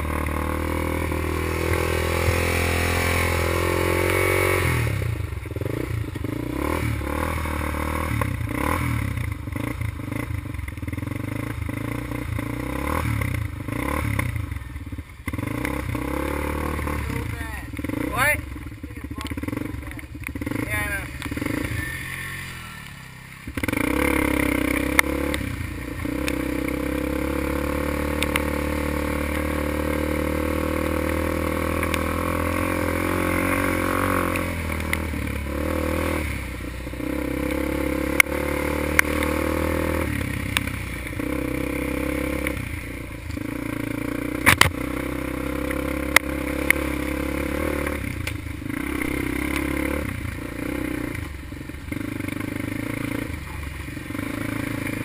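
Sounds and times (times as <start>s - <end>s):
quad engine under throttle: 0.0s - 55.0s
sharp clacks over bumps: 19.0s - 21.7s, 24.6s - 27.0s, 28.0s - 30.1s, 31.0s - 32.7s, 34.2s - 35.2s, 37.4s - 41.4s, 43.2s - 55.0s.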